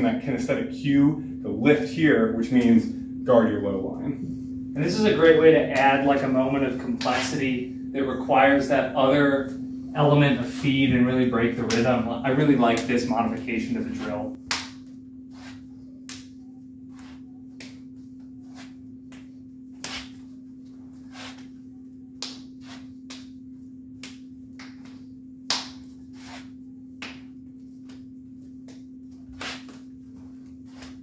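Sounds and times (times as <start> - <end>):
low hum: 0.0 - 31.0
hands and forearms slapping: 11.6 - 12.0, 12.6 - 13.1, 14.4 - 15.0, 16.0 - 16.4, 17.0 - 17.9, 18.6 - 20.3, 22.1 - 29.9.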